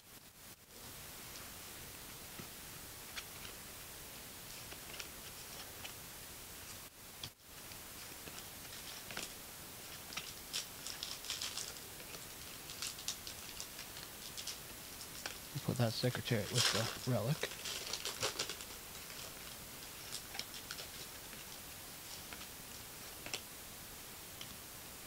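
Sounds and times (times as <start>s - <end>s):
steady hiss: 0.0s - 25.0s
trading cards flipped by hand: 16.4s - 21.5s.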